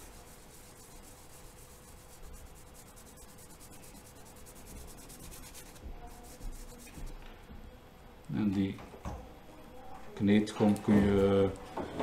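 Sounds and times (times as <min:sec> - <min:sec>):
eraser rubbing on paper: 0:00.0 - 0:07.2.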